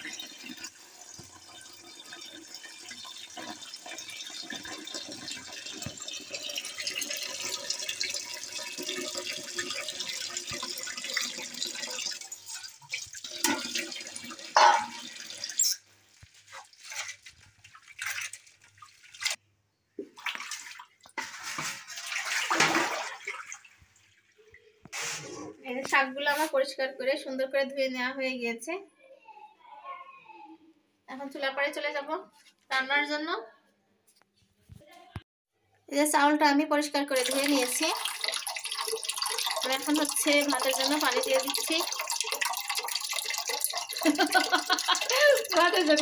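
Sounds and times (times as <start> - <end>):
tap water running into a pot: 0.0 - 19.4, 37.1 - 46.0
water splashing and sloshing: 0.0 - 19.4, 20.0 - 25.6, 37.1 - 46.0
leaves swished in water: 16.0 - 19.4, 20.2 - 23.5, 24.9 - 25.4.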